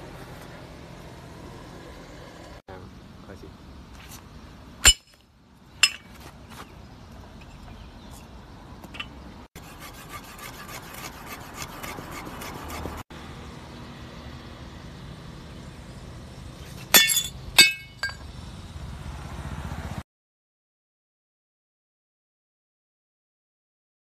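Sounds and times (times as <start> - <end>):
metal shovel clattering: 4.8 - 5.2, 5.8 - 6.2, 8.9 - 9.2, 16.7 - 18.2
sharp ringing metal clinks: 5.8 - 6.1, 16.9 - 18.3.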